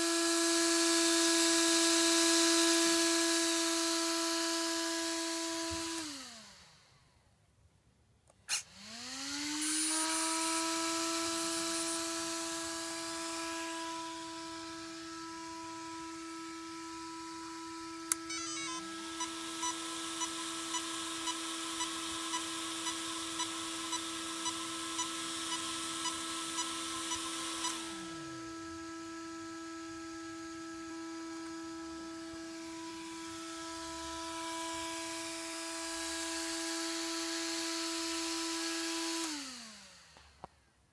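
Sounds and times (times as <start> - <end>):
small cooling fans whining: 8.4 - 40.8.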